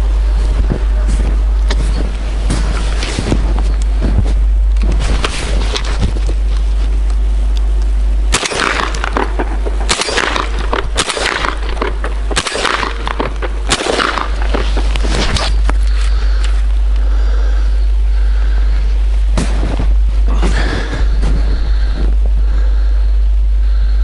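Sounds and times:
footsteps crunching through snow: 0.0 - 7.1, 13.1 - 16.8, 18.3 - 22.9
wind rumble on microphone: 0.0 - 16.8.

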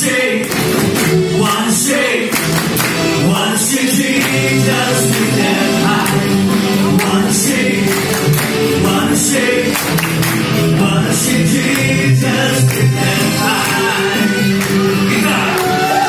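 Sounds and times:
man singing into microphone: 0.0 - 0.5, 1.3 - 2.4, 3.2 - 7.9, 8.8 - 9.8, 10.7 - 16.0
live rock band: 0.4 - 16.0.

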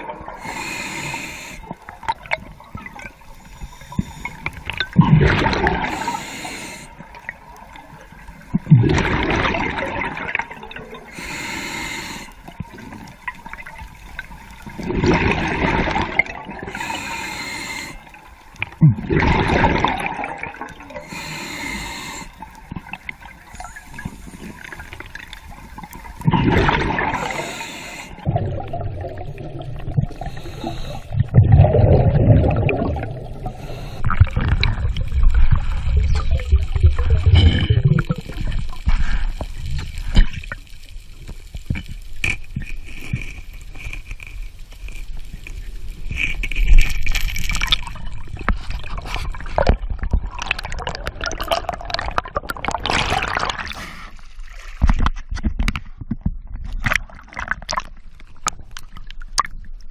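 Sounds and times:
bubbling exhale: 0.0 - 2.2, 3.4 - 7.0, 8.6 - 12.4, 14.7 - 22.6, 23.5 - 40.4
diver breathing through a regulator: 0.3 - 2.0, 3.3 - 4.7, 5.4 - 7.2, 11.0 - 12.9, 15.3 - 18.4, 20.8 - 22.6, 23.5 - 25.4, 26.6 - 28.8, 29.8 - 35.0, 38.8 - 40.4.

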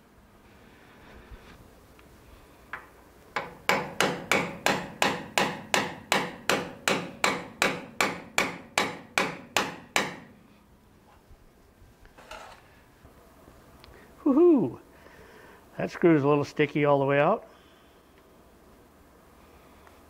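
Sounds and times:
hammer striking metal: 3.4 - 10.4.

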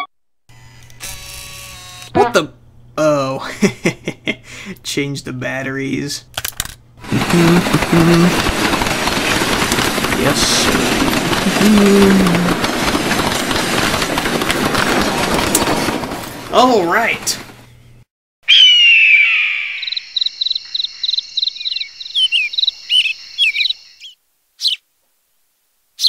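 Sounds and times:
train passing at speed: 7.0 - 17.7
wheel clatter on rails: 7.0 - 17.7
birds chirping: 17.2 - 24.9
falling whistle-like call: 18.5 - 20.2
crickets chirping: 19.8 - 24.8.

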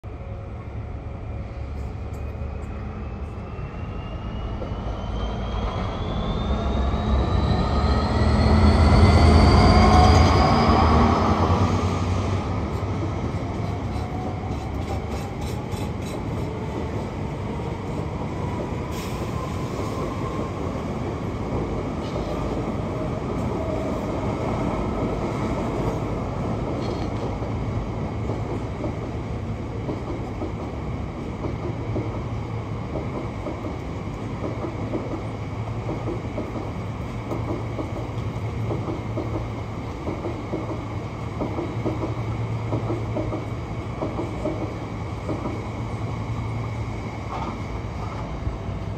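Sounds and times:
diesel locomotive engine passing: 0.1 - 48.9
rising engine whine: 2.2 - 13.0.

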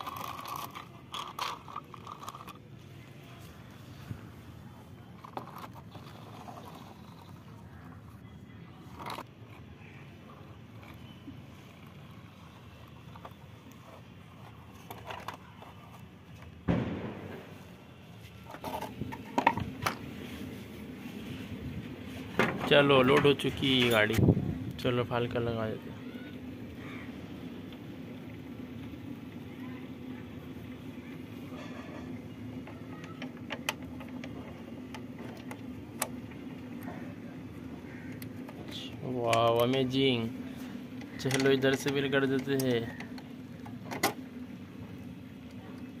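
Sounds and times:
plastic toy clicks: 0.0 - 2.6
steady low hum: 0.0 - 46.0.

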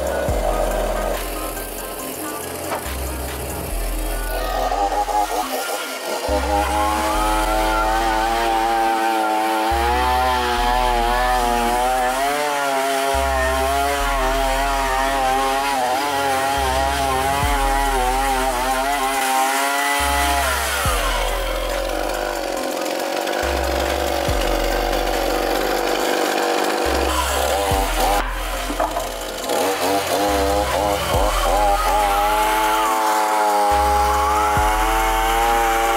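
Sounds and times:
chainsaw motor scouring metal: 0.0 - 35.9.

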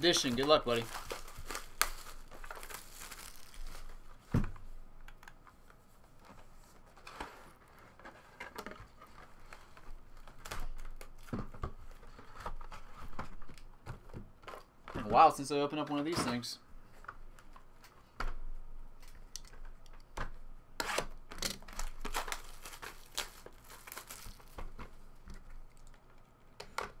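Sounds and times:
shrink wrap crinkling: 0.0 - 4.2, 21.6 - 26.4.

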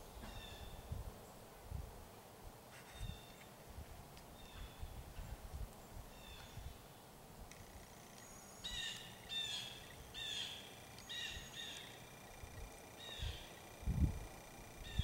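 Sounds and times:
faint outdoor background noise: 0.0 - 15.0
bird harsh calls: 8.6 - 15.0.

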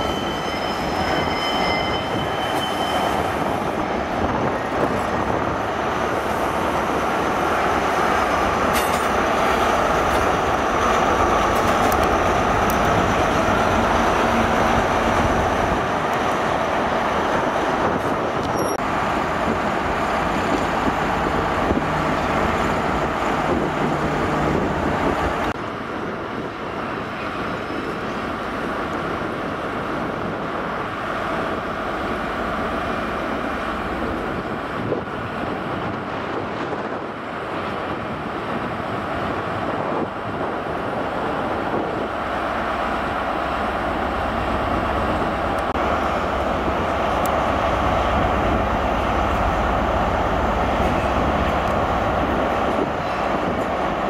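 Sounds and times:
diesel train engine drone: 0.0 - 54.0
wind on microphone: 1.9 - 18.8, 19.4 - 42.5.

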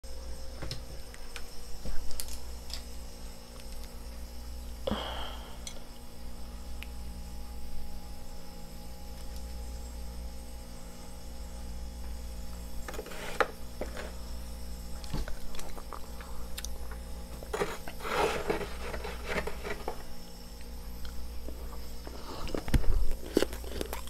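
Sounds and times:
steady low hum: 0.0 - 24.0
fingernails scraping frost: 17.5 - 19.8.

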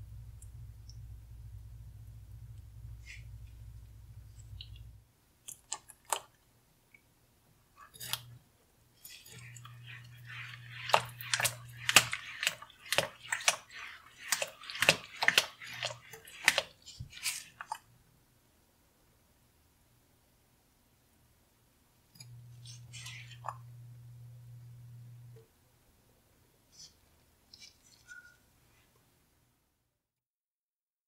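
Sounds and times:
thick sauce squelching when stirred: 9.0 - 17.9, 22.5 - 23.6.

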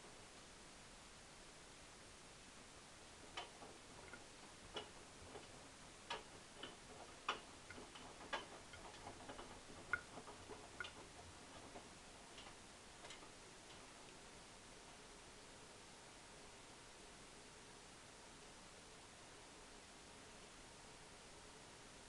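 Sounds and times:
laundry tapping inside drum: 3.2 - 13.3
washing machine drum turning: 3.3 - 13.2.

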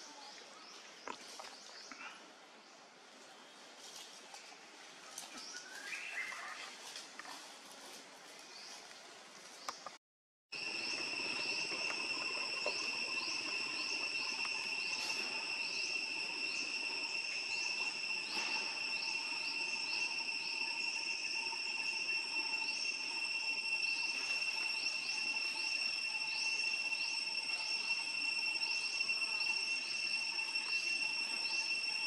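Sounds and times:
insects droning high-pitched buzz: 10.5 - 32.0
short rising chirps: 10.6 - 32.0.

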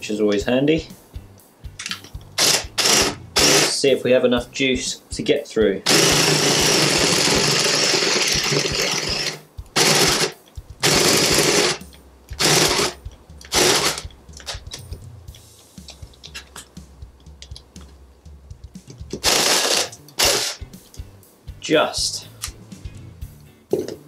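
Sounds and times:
cordless drill boring through wood: 2.4 - 3.7, 5.9 - 11.8, 12.4 - 14.0, 19.2 - 20.6.

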